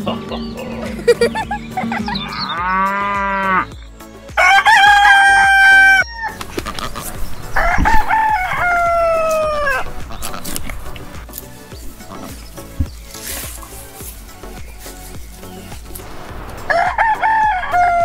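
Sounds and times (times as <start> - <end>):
rooster crowing: 4.4 - 6.4, 7.6 - 9.8, 16.7 - 18.0.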